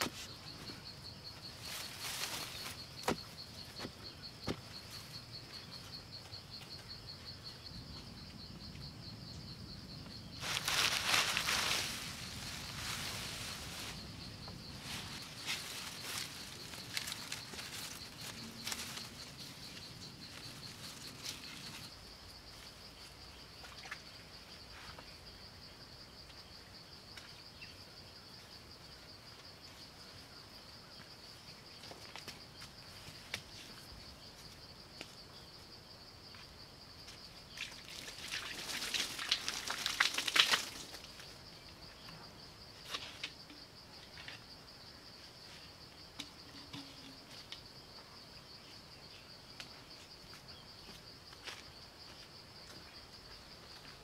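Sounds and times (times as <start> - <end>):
insects droning: 0.0 - 54.0
crackling rustle: 1.4 - 3.2, 10.4 - 22.0, 37.6 - 41.4.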